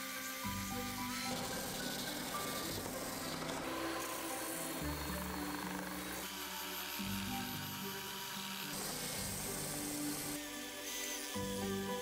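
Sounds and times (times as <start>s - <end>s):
background music with held notes: 0.0s - 12.0s
belt sander sanding wood: 0.0s - 12.0s.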